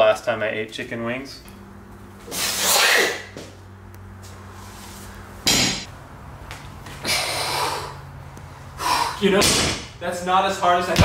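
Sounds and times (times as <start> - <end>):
steady low hum: 0.0 - 11.0
barbell clanking on platform: 5.5 - 5.9
breathy bursts: 7.0 - 9.3.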